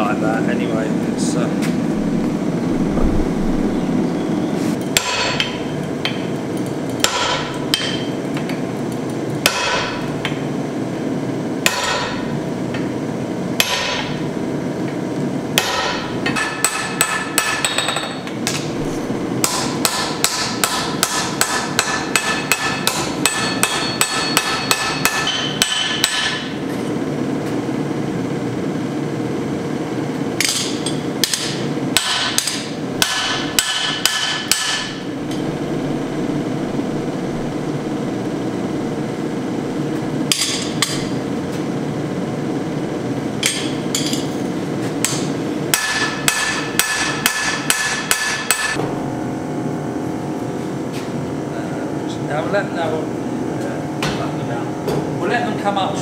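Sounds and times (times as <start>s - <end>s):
gas forge roaring: 0.0s - 56.0s
hammer striking steel on anvil: 4.9s - 6.3s, 7.0s - 8.2s, 9.4s - 10.4s, 11.6s - 12.3s, 13.6s - 14.2s, 15.6s - 18.6s, 19.4s - 26.6s, 30.4s - 35.1s, 40.3s - 41.2s, 43.4s - 44.3s, 45.0s - 48.8s.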